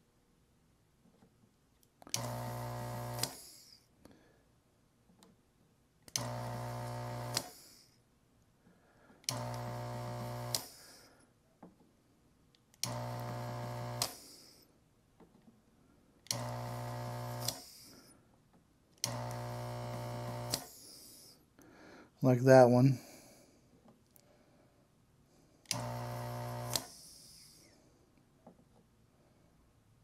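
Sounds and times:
desoldering pump buzzing: 2.1s - 3.7s, 6.2s - 7.8s, 9.3s - 10.9s, 12.8s - 14.6s, 16.3s - 18.0s, 19.0s - 21.3s, 25.7s - 27.6s
sharp click: 26.7s - 27.0s.

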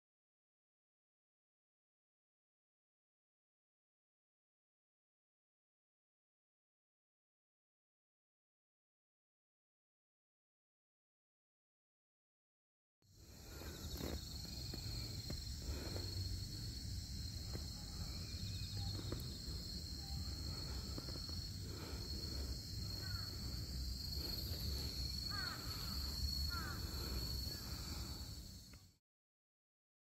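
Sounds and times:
high-pitched insect chorus: 13.1s - 29.0s
bird calling: 24.2s - 28.1s.

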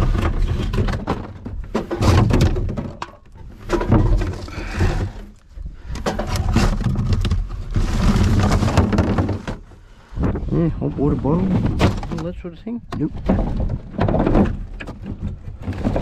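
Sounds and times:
plastic packaging and cardboard rustling: 6.0s - 9.7s.

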